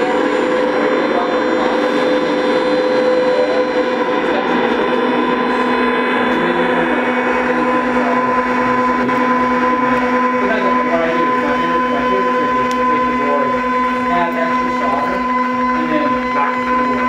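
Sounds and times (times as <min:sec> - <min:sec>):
noise music from guitar pedals: 0:00.0 - 0:17.0.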